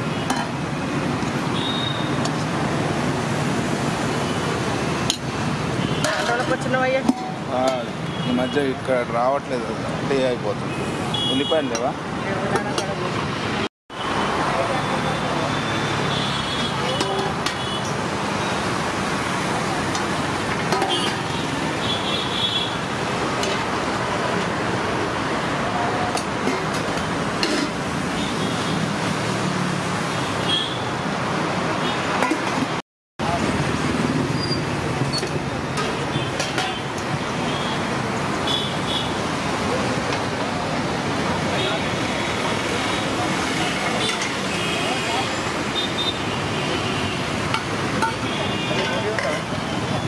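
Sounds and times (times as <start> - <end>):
roadside traffic: 0.0 - 50.0
steel utensils clinking: 6.0 - 7.9, 19.9 - 21.4, 23.4 - 24.5, 26.1 - 27.9, 35.0 - 37.0, 43.8 - 44.4, 47.5 - 49.5.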